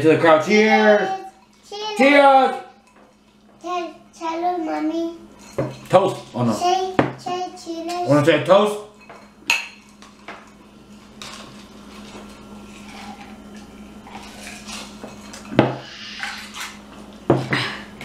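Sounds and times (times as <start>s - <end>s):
tableware sounds: 5.3s - 6.2s, 8.9s - 10.5s, 14.1s - 17.6s
glasses clinking: 5.4s - 6.0s, 9.0s - 10.4s.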